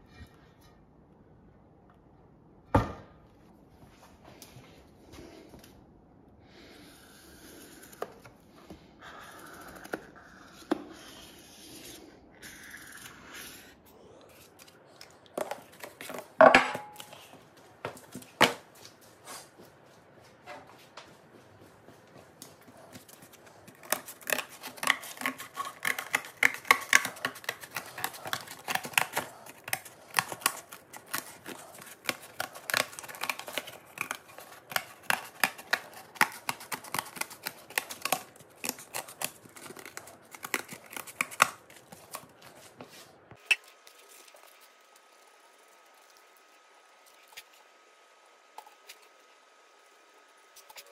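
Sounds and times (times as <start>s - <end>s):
masking tape crackling and snipping: 22.4s - 42.8s.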